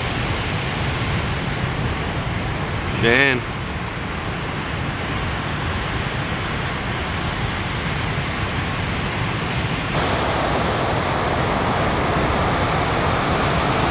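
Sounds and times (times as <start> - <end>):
ocean surf breaking: 10.0 - 13.9.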